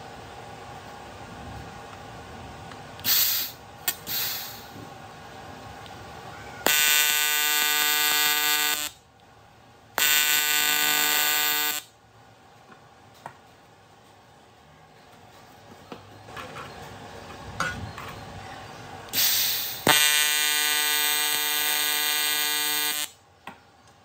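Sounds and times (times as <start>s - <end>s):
short noisy bursts: 3.0s - 4.8s, 6.6s - 9.0s, 10.0s - 11.9s, 19.1s - 23.2s
welding arc buzzing: 6.6s - 9.0s, 10.0s - 12.0s, 19.1s - 23.2s.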